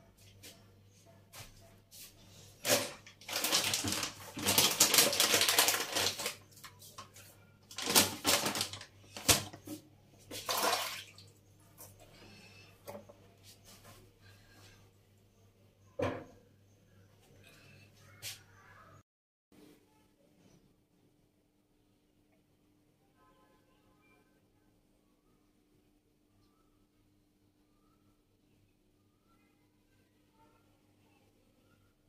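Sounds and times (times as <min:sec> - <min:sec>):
plastic pouch crinkling: 0:02.6 - 0:07.1, 0:07.7 - 0:09.5.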